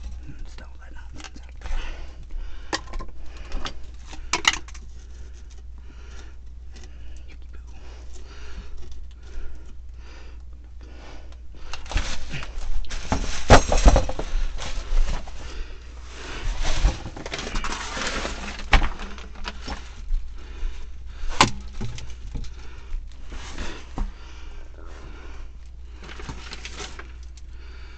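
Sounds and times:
plastic pipe scraping and knocking: 0:11.6 - 0:15.5, 0:16.3 - 0:20.2
debris clattering: 0:11.9 - 0:15.4.

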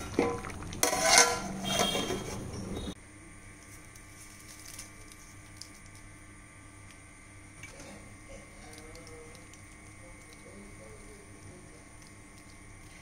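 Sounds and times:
low steady hum: 0:00.0 - 0:13.0
curry bubbling in a pot: 0:05.4 - 0:13.0.

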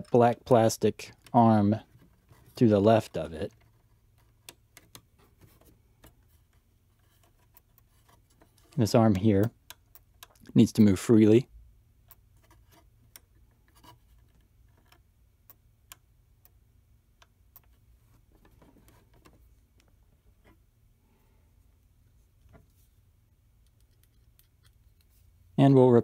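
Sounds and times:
faint room hum: 0:00.0 - 0:26.0.

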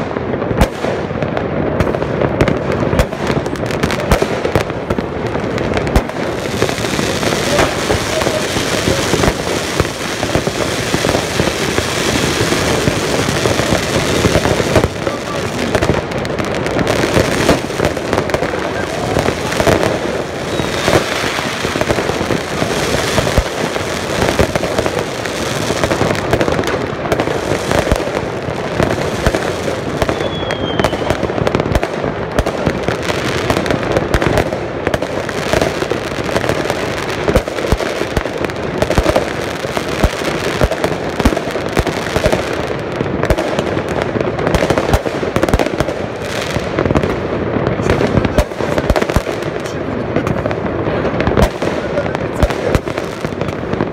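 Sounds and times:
fireworks bangs and crackles: 0:00.0 - 0:53.9
faint firework whistles: 0:20.4 - 0:21.2, 0:30.0 - 0:31.2.

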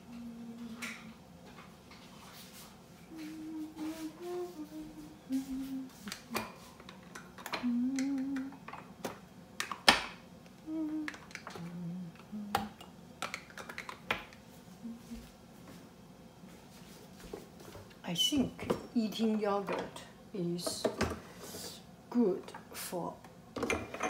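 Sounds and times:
person humming: 0:00.0 - 0:01.1, 0:03.1 - 0:06.7, 0:07.5 - 0:08.6, 0:10.6 - 0:12.8, 0:14.8 - 0:15.3.

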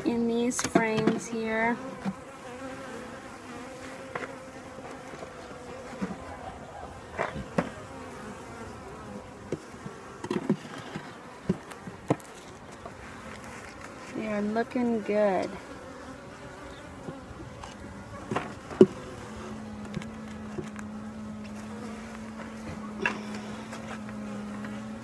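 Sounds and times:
honey bees buzzing: 0:00.0 - 0:25.0
knocks of wooden hive frames: 0:00.5 - 0:02.3, 0:09.5 - 0:13.0, 0:17.0 - 0:19.1.

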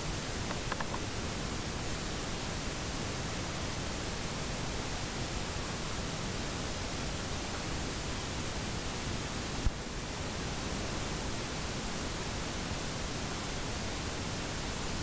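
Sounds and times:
steady hiss: 0:00.0 - 0:15.0.

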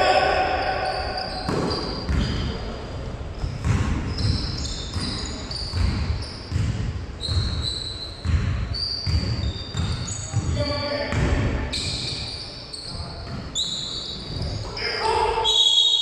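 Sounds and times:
sneaker squeaks: 0:00.0 - 0:02.8, 0:03.4 - 0:16.0
basketball bouncing on court floor: 0:01.2 - 0:02.5, 0:03.4 - 0:12.0.

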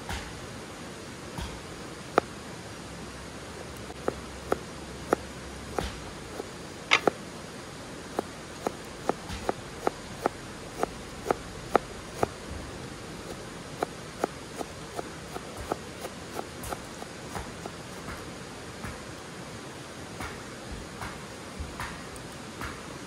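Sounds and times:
knife cutting crisp vegetable: 0:13.2 - 0:18.2.

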